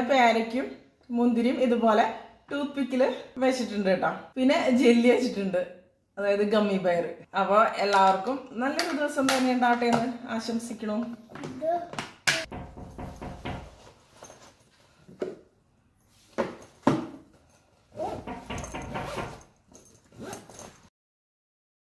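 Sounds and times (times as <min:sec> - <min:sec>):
knocks and rustles: 0:11.3 - 0:15.4, 0:16.3 - 0:20.9
zipper pulled: 0:17.9 - 0:20.9.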